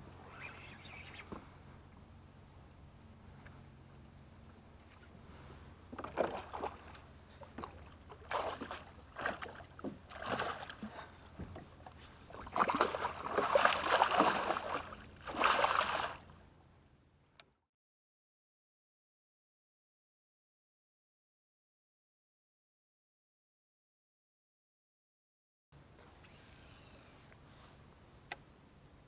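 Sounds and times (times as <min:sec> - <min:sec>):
fish thrashing and splashing: 0:07.6 - 0:10.9, 0:12.4 - 0:16.2.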